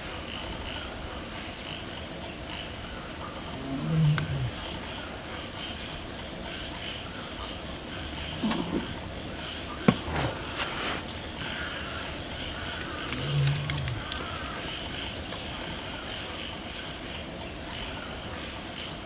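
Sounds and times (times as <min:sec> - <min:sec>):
crickets chirring: 0:07.9 - 0:16.1.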